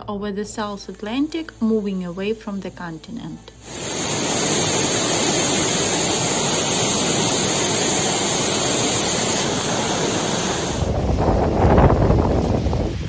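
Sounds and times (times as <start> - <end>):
floodwater rushing: 3.6 - 13.0.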